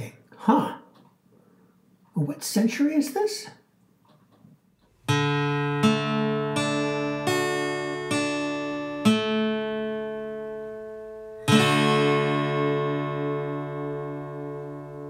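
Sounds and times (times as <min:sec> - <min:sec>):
acoustic guitar chords ringing: 0:04.9 - 0:15.0.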